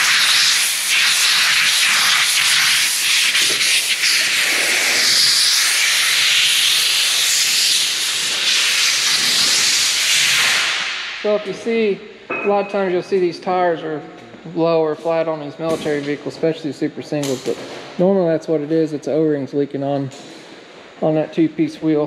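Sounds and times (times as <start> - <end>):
compressed air blowgun hissing: 0.0 - 11.2.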